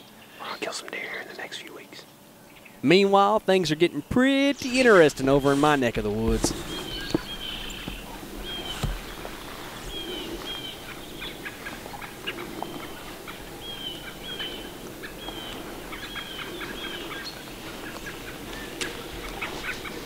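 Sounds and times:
bird chirping: 0:00.0 - 0:20.0
outdoor background noise: 0:00.0 - 0:20.0.

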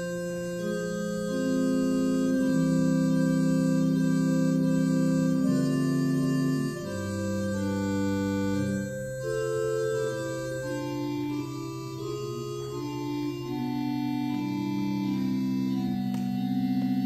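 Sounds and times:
organ playing slow chords: 0:00.0 - 0:17.0.

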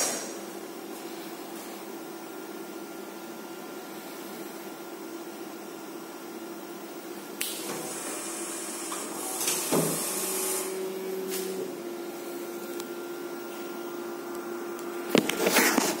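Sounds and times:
whirring hiss with clunk: 0:07.4 - 0:11.6
film printer humming: 0:07.6 - 0:16.0.

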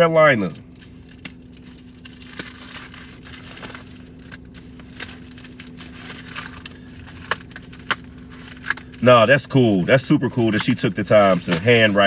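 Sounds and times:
envelope rustling and crinkling: 0:00.9 - 0:09.0, 0:11.1 - 0:12.0.

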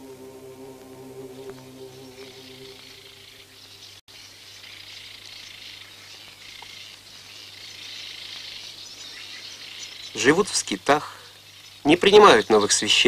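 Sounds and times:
held music tones: 0:00.0 - 0:04.0
insects chirring: 0:00.0 - 0:13.0
bird chirps: 0:01.3 - 0:10.5.

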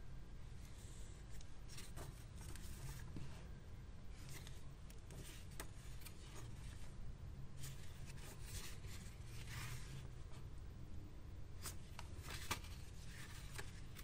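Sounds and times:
paper pages rustling and flicking: 0:01.3 - 0:03.2, 0:04.2 - 0:06.9, 0:07.6 - 0:10.1, 0:11.6 - 0:14.0.

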